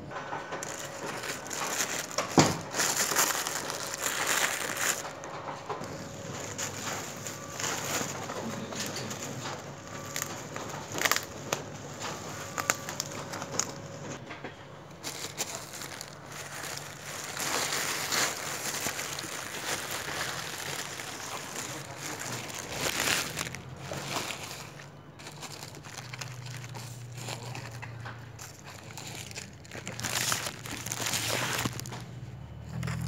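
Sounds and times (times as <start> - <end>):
bubble wrap and plastic crinkling: 0.5 - 14.2, 14.9 - 33.0
sharp crackles: 28.7 - 33.0.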